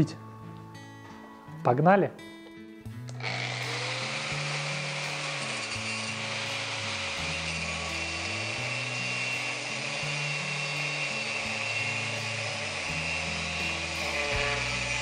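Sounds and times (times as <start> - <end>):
background music: 0.0 - 15.0
angle grinder cutting steel: 3.1 - 15.0.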